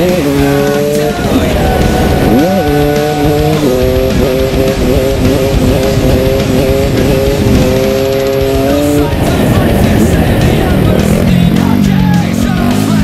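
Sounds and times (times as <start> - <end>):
heavy wind noise: 0.0 - 12.6
dirt bike engine at high revs: 0.0 - 13.0
rock music: 0.0 - 13.0.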